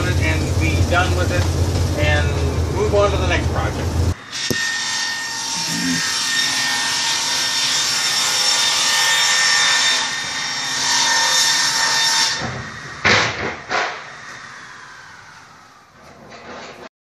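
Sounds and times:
power saw cutting wood: 0:00.0 - 0:15.7.

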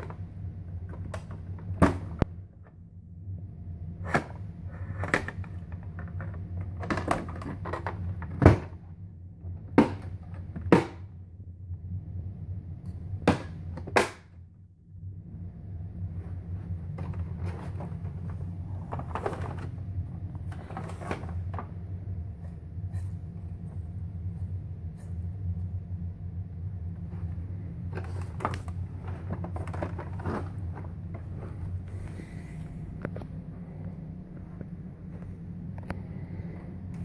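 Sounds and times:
steady low hum: 0:00.0 - 0:37.0
plastic knocks and rattles: 0:05.0 - 0:08.8.

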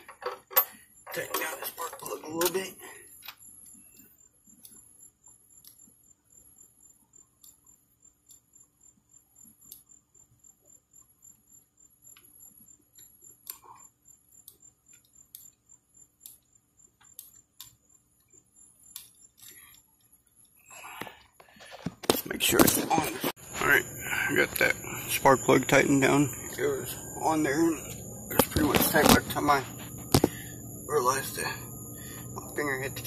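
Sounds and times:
crickets trilling: 0:00.0 - 0:33.0
soft ticks: 0:03.2 - 0:05.9, 0:07.4 - 0:08.7, 0:12.0 - 0:20.6.

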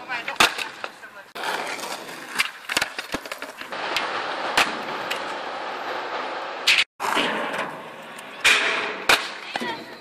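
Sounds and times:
skateboard wheels rolling on asphalt: 0:00.0 - 0:08.4
skateboard clacking on ground: 0:00.2 - 0:05.4.

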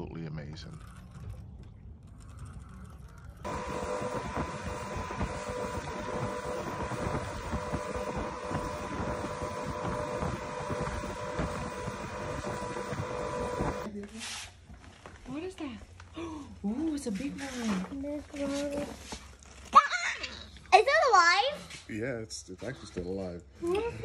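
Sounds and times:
motorboat engine hum: 0:00.7 - 0:13.9
wind buffeting microphone: 0:03.4 - 0:13.9.

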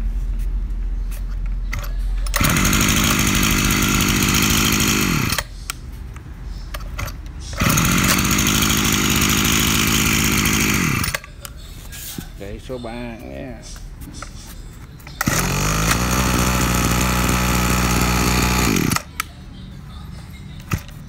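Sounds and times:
brush cutter engine revving: 0:02.3 - 0:05.5, 0:07.6 - 0:11.2, 0:15.2 - 0:19.2.

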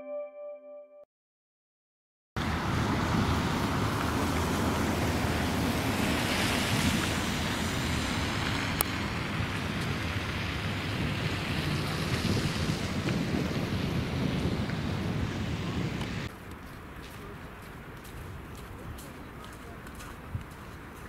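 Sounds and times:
blizzard wind on microphone: 0:02.4 - 0:16.3.

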